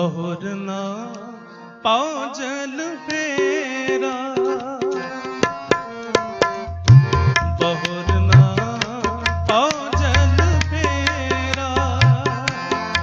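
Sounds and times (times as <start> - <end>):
held melody: 3.2 - 13.0
tabla playing: 3.2 - 13.0.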